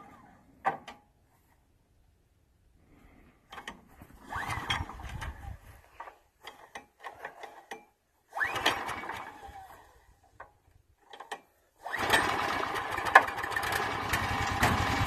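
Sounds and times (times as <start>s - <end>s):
engine recoil starter pulled: 3.5s - 15.0s
whirring ratcheting engine turn-over: 3.5s - 15.0s.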